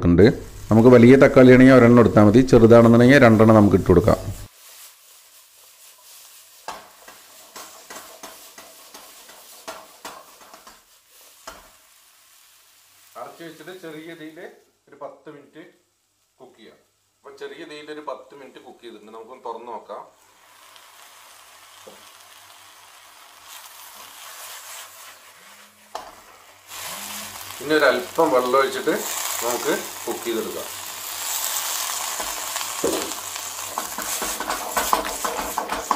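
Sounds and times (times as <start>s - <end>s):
faint sizzle: 0.2s - 35.9s
spatula scraping frying pan: 4.4s - 13.2s, 20.4s - 35.9s
sharp tap on wok: 33.8s - 35.9s.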